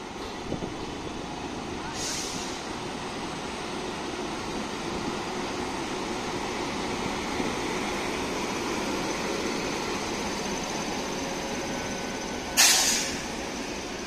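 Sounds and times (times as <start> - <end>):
train passing with hum and rumble: 0.0 - 14.0
loud air hiss: 1.9 - 2.8, 12.6 - 13.4.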